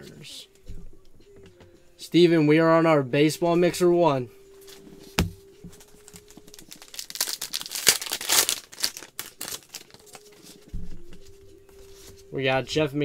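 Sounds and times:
foil wrapper tearing and crinkling: 5.8 - 10.4.

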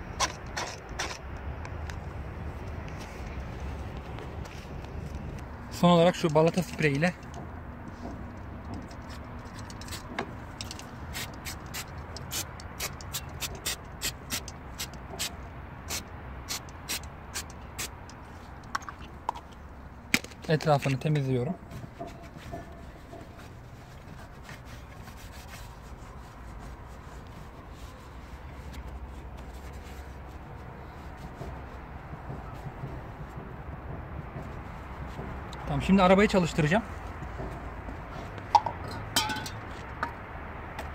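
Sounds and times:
cloth wiping metal: 21.4 - 33.3.

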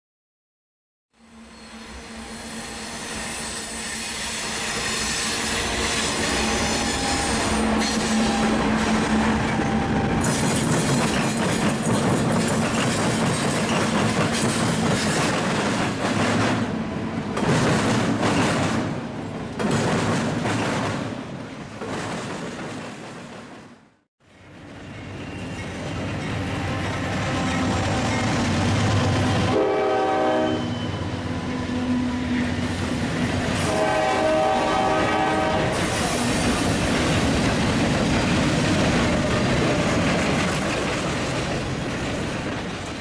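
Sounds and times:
diesel locomotive engines droning: 1.2 - 14.8, 24.2 - 43.0
train wheels clattering on track: 4.5 - 16.7, 17.3 - 23.8, 32.6 - 43.0.

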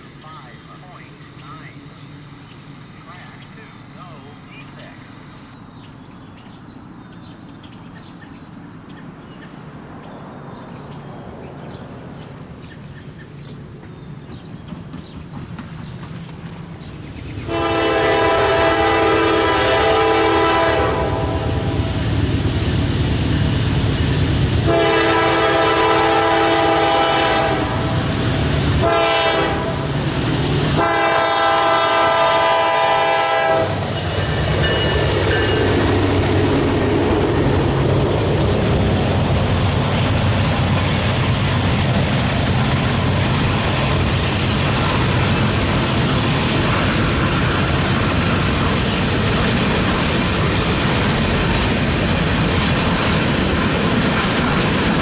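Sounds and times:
freight train rumbling and clacking: 0.0 - 55.0
locomotive horn blasts: 17.5 - 21.8, 24.6 - 27.9, 28.8 - 29.9, 30.8 - 33.8.

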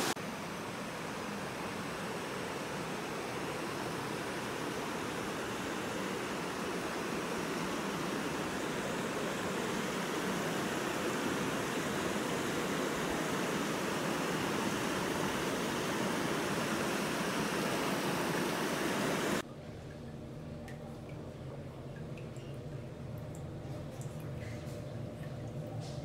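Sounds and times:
faint water drips: 19.4 - 26.0.

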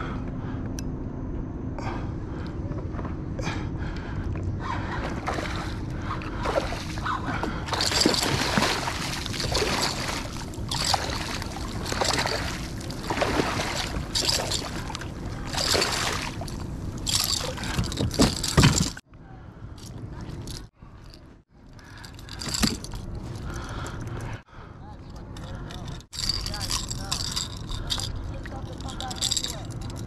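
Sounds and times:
fish splashing at water surface: 6.4 - 18.9.

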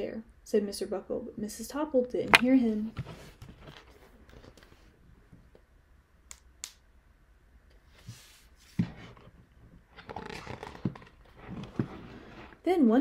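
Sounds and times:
paper rustling and scraping: 8.0 - 12.6.

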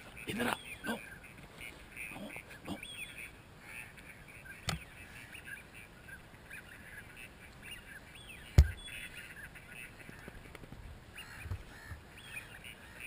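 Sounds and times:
ducks quacking: 0.0 - 10.4.

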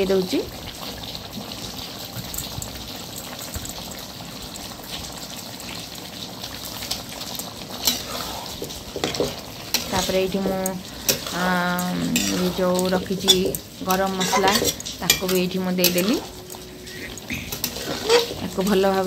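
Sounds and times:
gravy simmering and sizzling: 0.0 - 19.0
metal spatula knocking pan: 8.6 - 11.4, 12.2 - 16.9.

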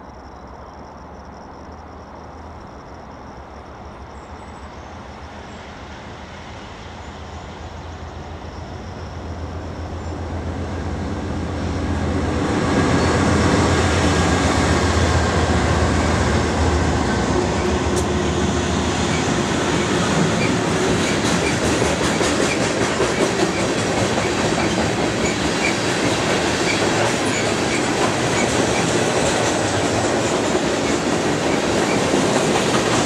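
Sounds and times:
diesel locomotive engine drone: 0.0 - 33.0
freight cars rolling by: 7.6 - 33.0.

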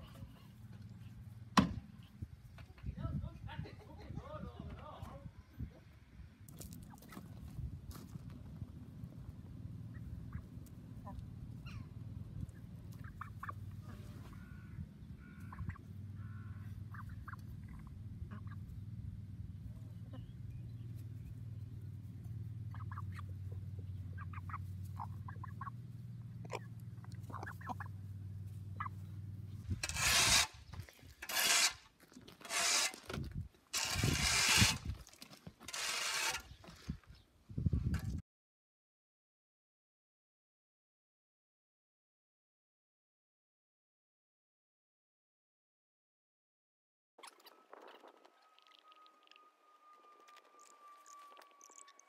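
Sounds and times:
hens clucking softly: 9.8 - 18.8, 19.7 - 21.1, 22.2 - 28.1
loud rough noise bursts: 29.8 - 30.6, 33.8 - 34.9.

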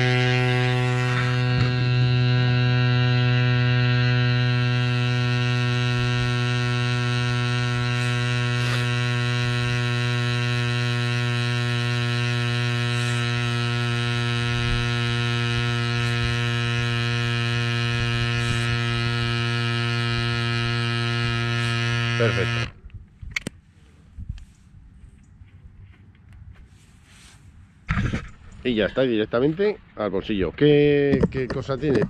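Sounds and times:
electric tyre compressor droning: 0.0 - 22.8.

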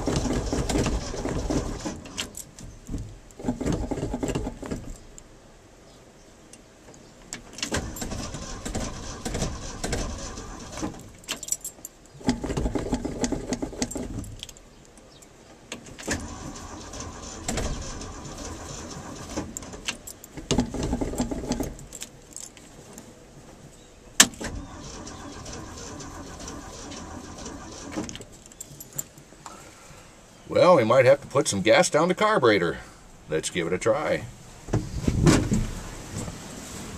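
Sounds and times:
engine cranking on starter: 0.0 - 2.4, 3.4 - 4.8, 7.6 - 11.1, 12.2 - 14.2, 16.0 - 21.8, 24.3 - 28.3.

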